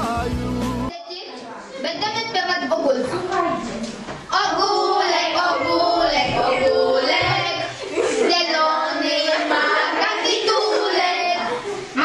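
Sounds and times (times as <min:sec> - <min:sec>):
music: 0:00.0 - 0:00.9
children singing: 0:04.3 - 0:12.0.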